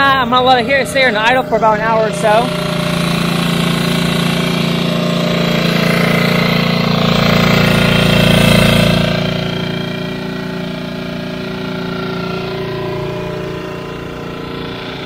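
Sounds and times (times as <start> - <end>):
outboard motor idling: 0.0 - 15.0.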